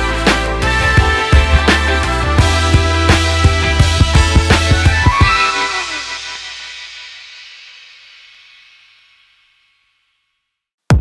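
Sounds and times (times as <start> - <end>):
music with drums and bass: 0.0 - 7.6.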